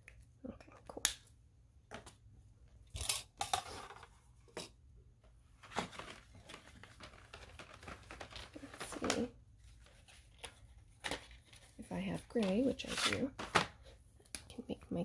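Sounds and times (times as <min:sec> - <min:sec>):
paper and clipboard rustling: 0:05.4 - 0:14.0.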